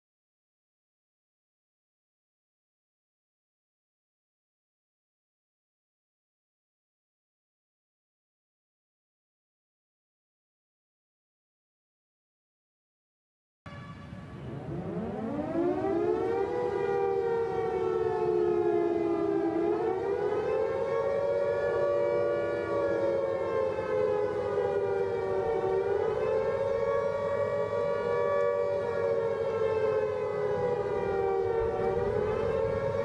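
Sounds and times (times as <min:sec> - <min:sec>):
civil defense siren wailing: 0:13.7 - 0:33.0.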